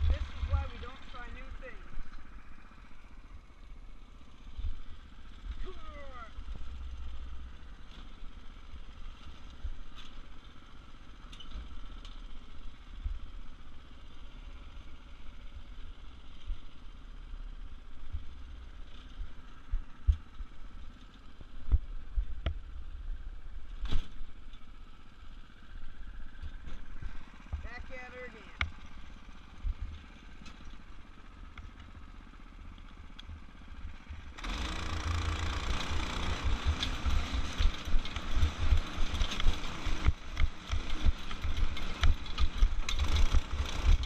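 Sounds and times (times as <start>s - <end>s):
go-kart engine running: 0.0s - 44.0s
go-kart knocking: 34.3s - 44.0s.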